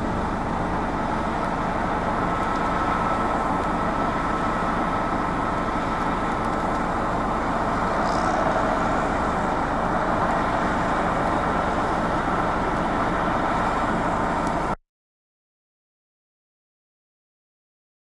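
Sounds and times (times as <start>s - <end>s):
faint steady whine: 0.0s - 14.8s
vehicle engine and road noise: 0.0s - 14.8s.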